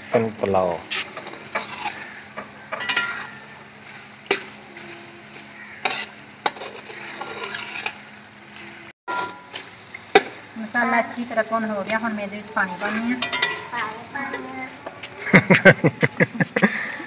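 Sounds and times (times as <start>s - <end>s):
masala sizzling in pot: 0.0s - 17.0s
metal spatula scraping pot: 0.9s - 9.7s, 12.5s - 14.6s.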